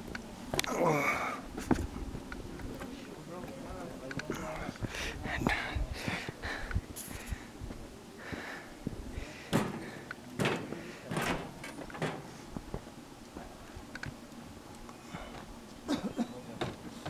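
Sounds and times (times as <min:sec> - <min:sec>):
knocks and rustles: 0:09.5 - 0:12.9.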